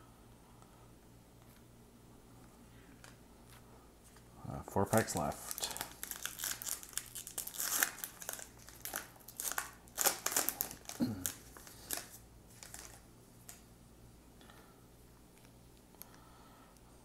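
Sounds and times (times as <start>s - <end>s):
wrapper tearing and crinkling: 5.0s - 13.0s
handling of cards: 5.0s - 13.6s.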